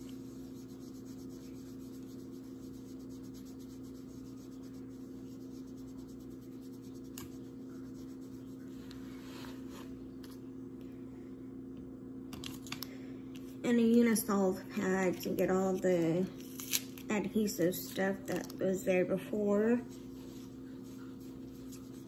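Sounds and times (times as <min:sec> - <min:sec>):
pad rubbing on skin: 0:00.0 - 0:10.1, 0:19.8 - 0:22.0.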